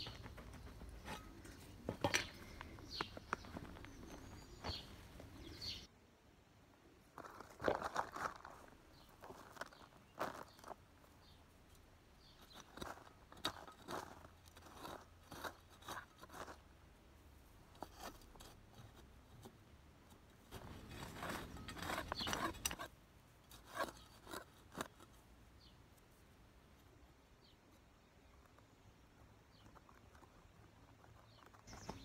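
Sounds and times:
hand hoe scraping stony soil: 0:07.2 - 0:10.8, 0:12.4 - 0:16.6, 0:20.5 - 0:25.2.

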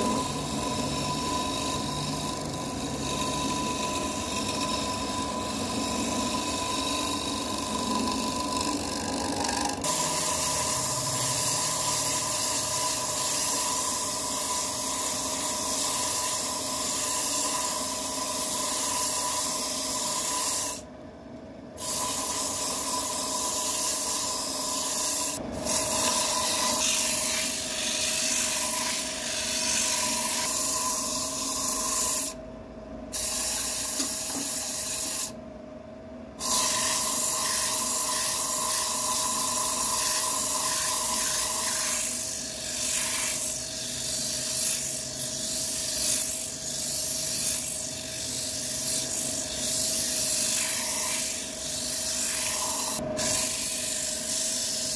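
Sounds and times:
lathe motor hum: 0:00.0 - 0:18.9
sandpaper rubbing spinning wood: 0:00.0 - 0:20.8, 0:36.4 - 0:54.9.

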